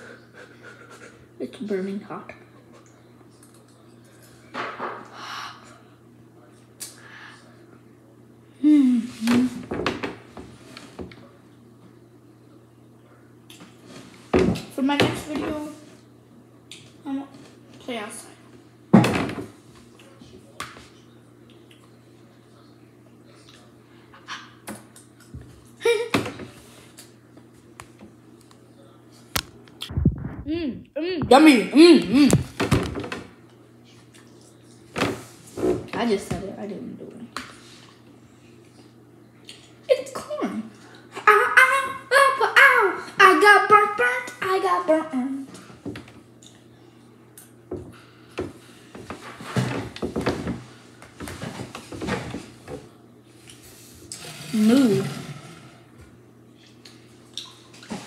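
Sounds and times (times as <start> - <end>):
short vocal sound: 54.2 - 55.7.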